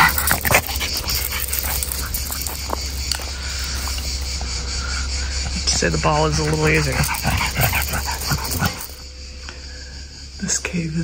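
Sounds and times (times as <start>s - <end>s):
dog running on gravel: 0.0s - 4.5s, 5.6s - 9.0s.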